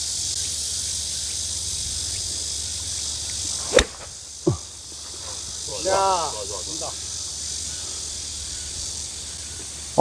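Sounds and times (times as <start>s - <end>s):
insects buzzing: 0.0s - 10.0s
golf club striking ball: 3.6s - 4.2s.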